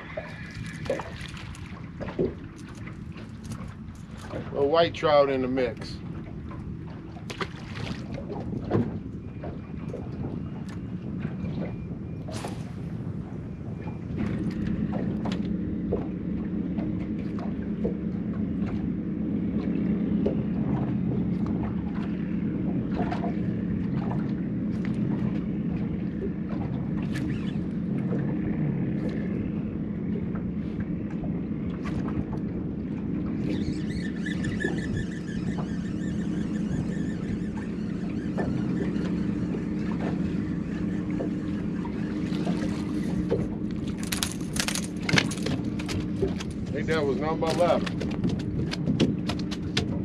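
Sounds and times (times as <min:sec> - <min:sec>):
boat motor humming: 0:00.0 - 0:50.0
sharp knocks on boat: 0:00.9 - 0:04.5, 0:07.2 - 0:10.4, 0:42.3 - 0:50.0.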